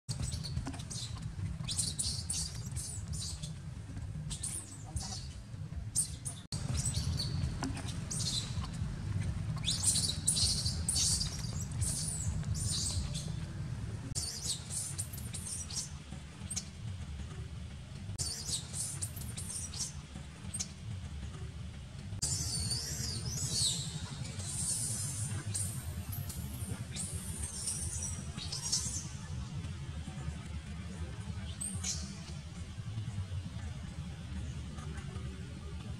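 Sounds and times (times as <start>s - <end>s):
baby monkey squeaking: 0.1s - 3.6s, 4.3s - 5.4s, 6.0s - 8.8s, 9.5s - 13.4s, 14.2s - 15.9s, 18.2s - 20.7s, 22.2s - 29.1s
steady low rumble: 0.4s - 14.2s.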